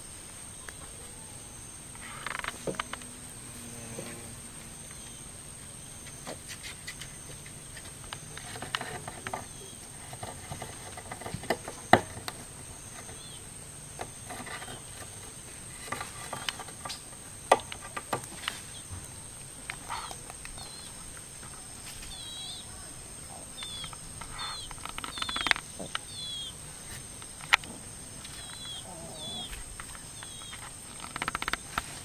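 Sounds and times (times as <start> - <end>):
high insect drone: 0.0 - 32.0
faint high chirps: 18.6 - 26.6
beak tapping on wooden bench: 23.6 - 26.5.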